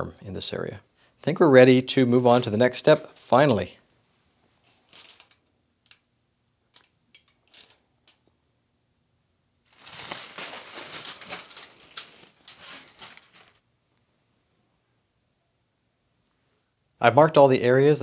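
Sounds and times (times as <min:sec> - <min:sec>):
pen scratching crinkling foil: 0:04.9 - 0:05.4, 0:07.4 - 0:07.8, 0:09.8 - 0:13.6.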